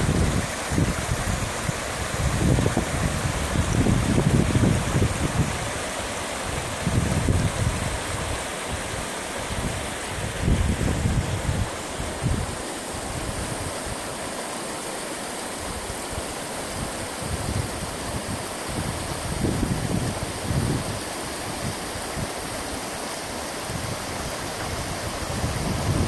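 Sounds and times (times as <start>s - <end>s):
wind buffeting microphone: 0.0s - 5.8s, 6.4s - 8.9s, 9.5s - 14.0s, 17.2s - 22.3s, 23.7s - 26.0s
river rushing over rocks: 0.0s - 26.0s.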